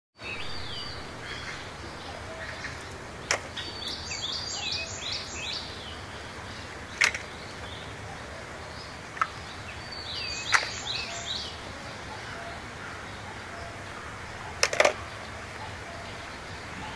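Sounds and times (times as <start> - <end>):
bird chirping: 0.2 - 16.9
plastic toys dropped into basket: 7.0 - 7.4, 14.6 - 15.0.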